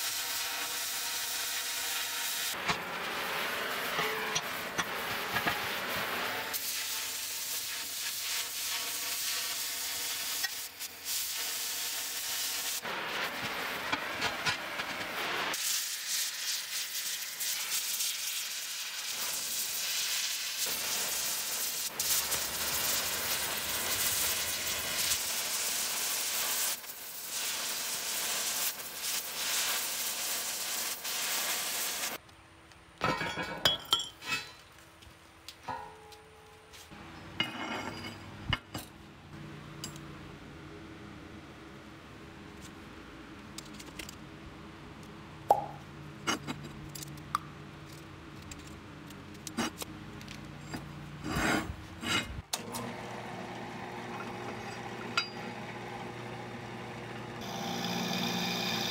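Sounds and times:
cutting torch hissing: 0:00.0 - 0:32.2.

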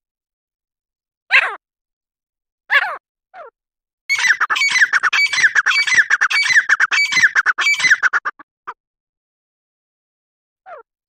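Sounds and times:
francolin calling: 0:04.1 - 0:08.4.

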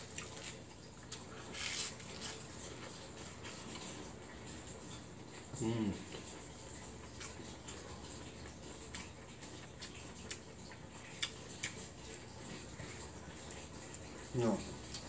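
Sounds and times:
faint background hum: 0:00.0 - 0:15.0.

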